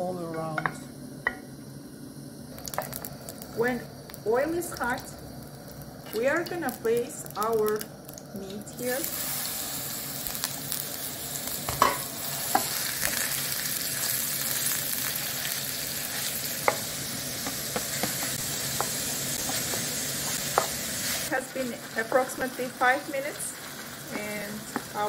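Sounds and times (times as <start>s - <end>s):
meat sizzling in a frying pan: 2.1s - 25.0s
wooden spoon tapping a pan: 16.6s - 20.8s, 24.1s - 25.0s.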